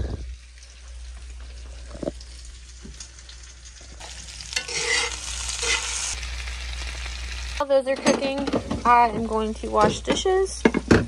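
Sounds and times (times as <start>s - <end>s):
food sizzling in a pan: 0.0s - 7.8s.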